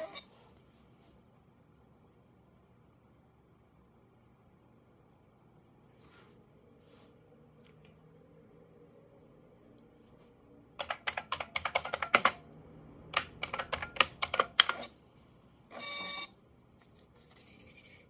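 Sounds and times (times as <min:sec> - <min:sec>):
mechanical keyboard keys clacking: 0:10.8 - 0:12.4, 0:13.1 - 0:14.8
receipt printer motor buzz: 0:15.7 - 0:16.3.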